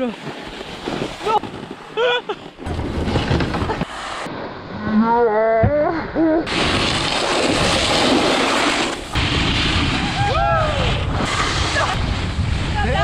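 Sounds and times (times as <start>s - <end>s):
snowboard scraping over snow: 0.0s - 5.2s, 6.5s - 13.0s
wind on microphone: 9.2s - 13.0s.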